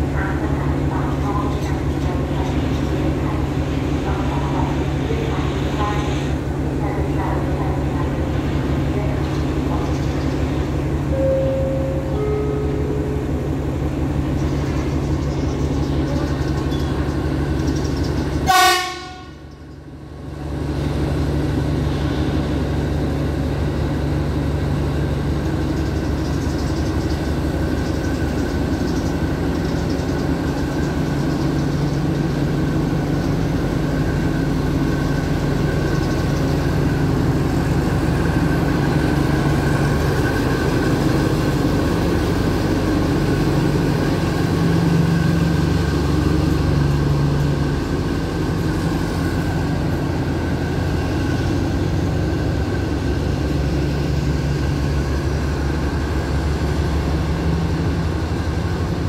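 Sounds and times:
diesel locomotive running: 0.0 - 59.0
locomotive horn toot: 18.4 - 19.4.

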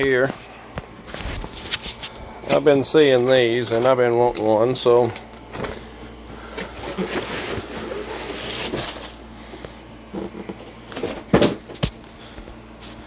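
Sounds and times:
cardboard box rustling and scraping: 6.5 - 9.2.

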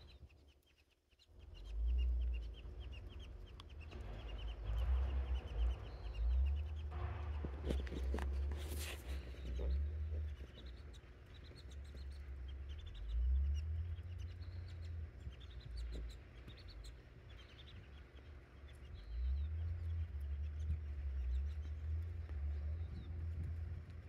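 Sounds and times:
small birds chirping: 0.0 - 24.0
wind buffeting microphone: 19.0 - 24.0.

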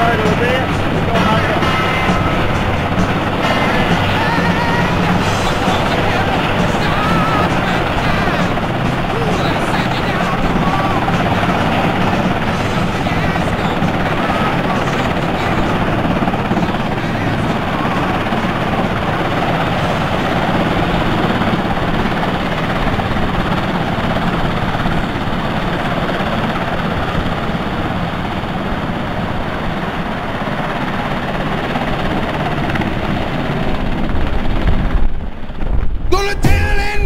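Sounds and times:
heavy low rumble: 0.0 - 21.9
helicopter engines and rotors: 0.0 - 37.0.

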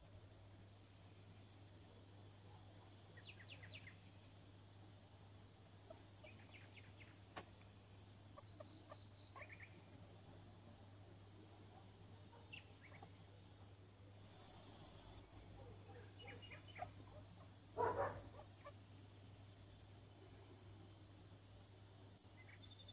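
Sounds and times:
small animal squeaking: 16.3 - 17.5.

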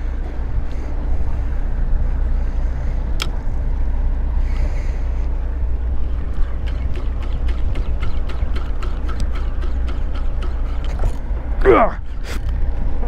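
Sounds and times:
boat engine rumble: 0.0 - 13.0
sharp clicks: 6.2 - 11.2.

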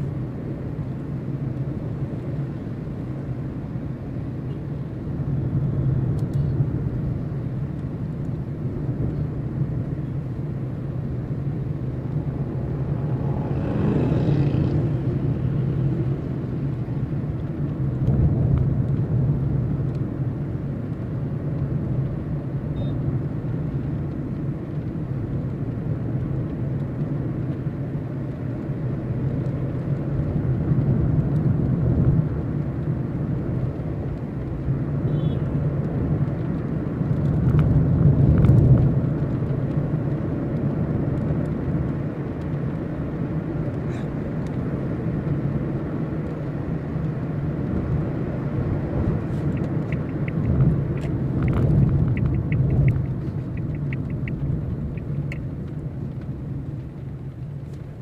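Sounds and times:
car engine and tyres on wet road: 0.0 - 58.0
light regular ticking: 44.4 - 58.0.

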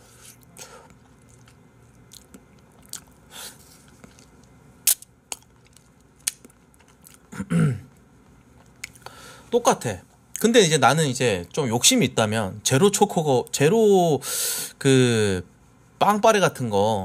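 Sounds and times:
man chewing ice cream: 0.2 - 9.1.

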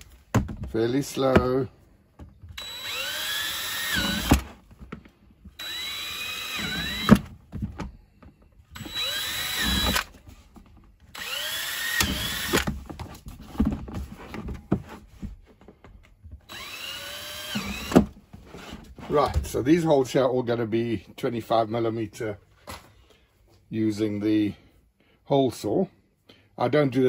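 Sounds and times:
cordless drill whining: 2.4 - 4.7, 5.4 - 10.2, 11.1 - 12.8, 16.4 - 18.2.

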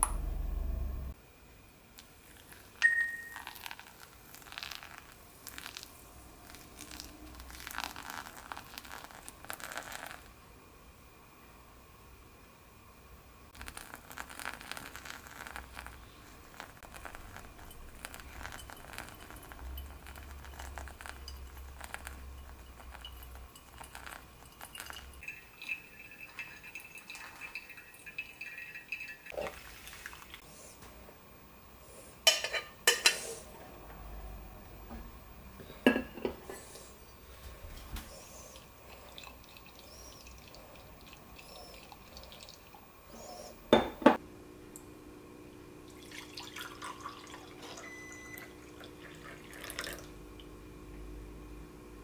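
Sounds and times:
water trickling onto coffee grounds: 2.0 - 10.4, 13.5 - 30.4, 36.6 - 43.5, 45.9 - 50.5.

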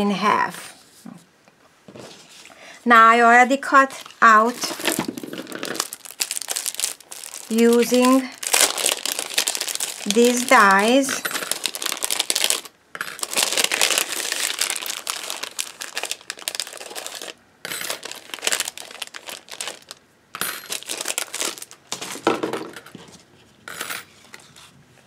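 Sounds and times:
plastic sleeve crinkling: 3.9 - 20.0, 20.6 - 23.2.

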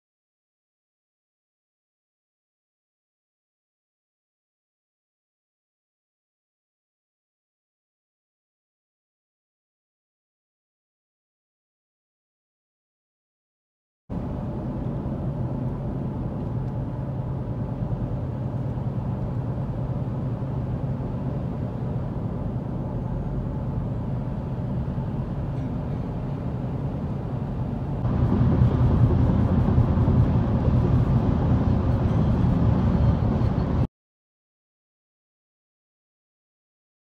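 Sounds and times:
car engine hum: 14.1 - 33.9.

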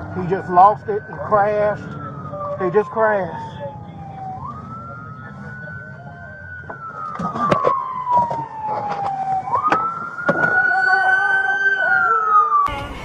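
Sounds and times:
police siren wailing: 0.0 - 13.0.

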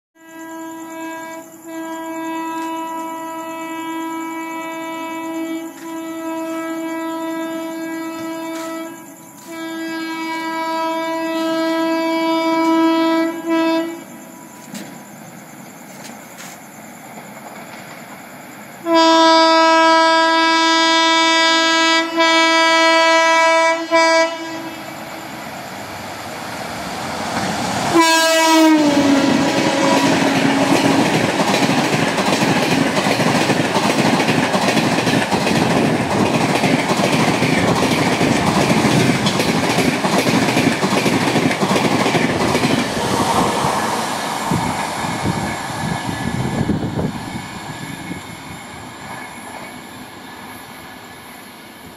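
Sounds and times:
train horn blast: 0.2 - 14.4, 18.8 - 25.0, 27.2 - 31.3
train coaches rushing past: 0.6 - 51.9
rail clatter: 14.6 - 18.6, 25.8 - 49.9.

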